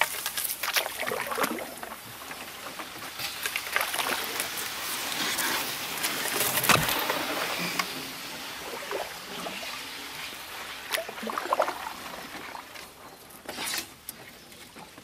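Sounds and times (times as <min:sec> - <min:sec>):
paddle splashing water: 0:00.0 - 0:15.0.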